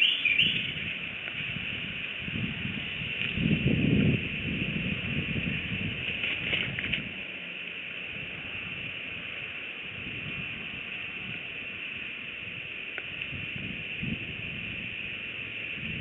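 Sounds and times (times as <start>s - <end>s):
steady hiss: 0.0s - 16.0s
wind rumbling on microphone: 0.0s - 16.0s
brief rustle: 6.1s - 7.1s.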